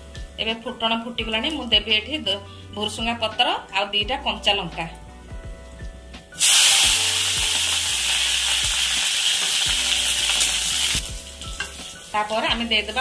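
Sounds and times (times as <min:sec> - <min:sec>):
leaves sizzling in hot oil: 0:06.4 - 0:13.0.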